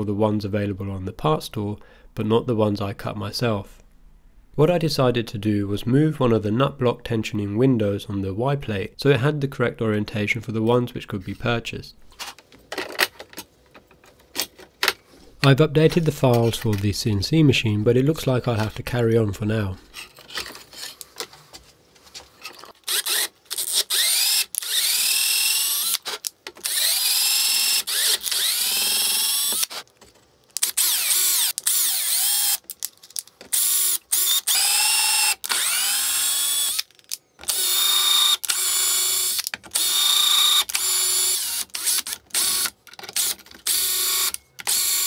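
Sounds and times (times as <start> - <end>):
cordless drill driving screws: 22.8 - 29.8, 30.6 - 32.7, 33.5 - 45.0.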